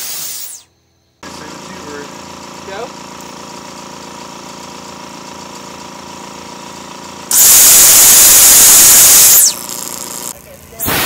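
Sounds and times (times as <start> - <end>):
falling whistle: 7.3 - 9.6
steady hum: 7.3 - 11.0.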